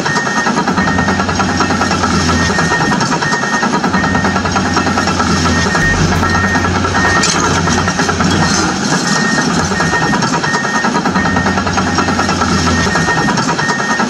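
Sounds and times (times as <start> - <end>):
engine running: 4.4 - 10.2.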